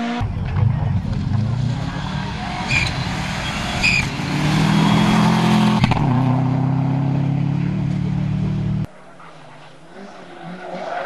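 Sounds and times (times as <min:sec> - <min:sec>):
rally car engine revving hard: 0:01.0 - 0:08.9.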